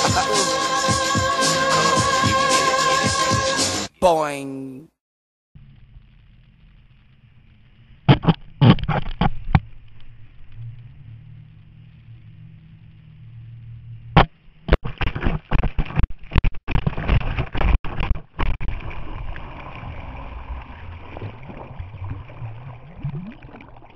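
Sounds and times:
water rushing underwater: 18.6s - 23.9s.

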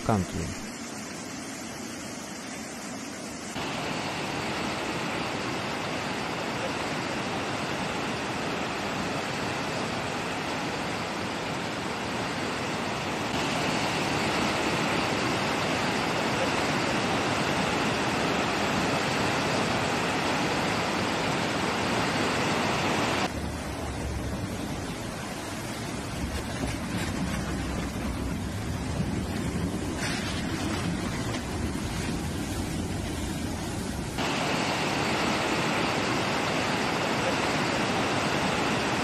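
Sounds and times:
floodwater rushing: 0.0s - 39.0s.

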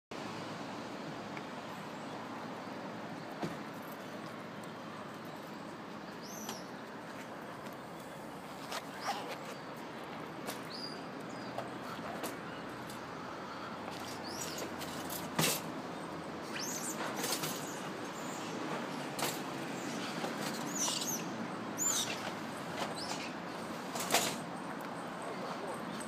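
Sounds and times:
outdoor background noise: 0.1s - 26.0s.

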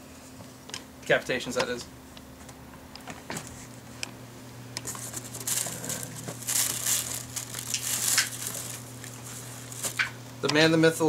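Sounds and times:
steady low hum: 0.0s - 11.0s
plastic crinkling: 4.8s - 10.2s.

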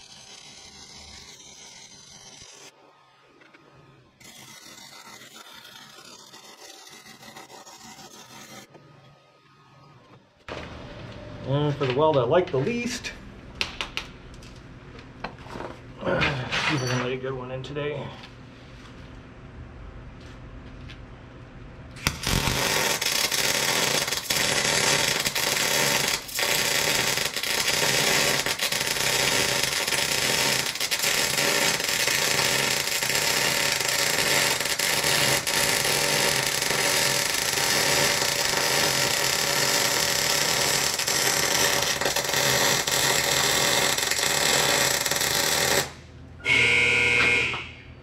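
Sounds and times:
welding arc buzzing: 0.0s - 2.8s, 4.2s - 8.7s, 22.0s - 47.8s.

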